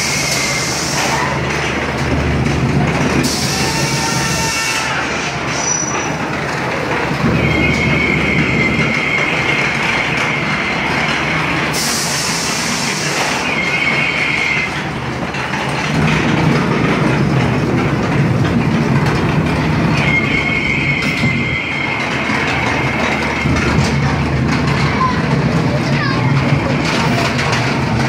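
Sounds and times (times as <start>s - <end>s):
high wheel squeal: 0.0s - 1.3s, 3.2s - 6.2s, 7.2s - 14.9s, 19.7s - 23.6s
ride car rumbling on track: 0.0s - 28.0s.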